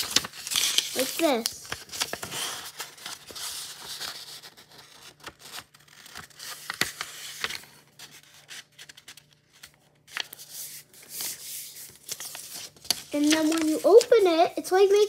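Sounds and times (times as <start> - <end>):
paper rustling and creasing: 0.0 - 15.0.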